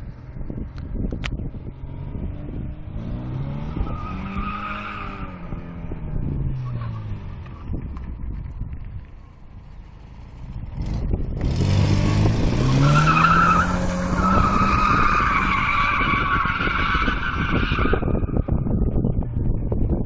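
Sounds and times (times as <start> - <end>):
car engine revving: 1.5 - 8.0, 10.0 - 18.2.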